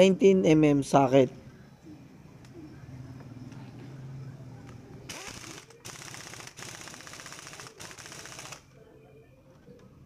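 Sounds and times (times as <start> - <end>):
air impact wrench hammering: 5.1 - 8.6.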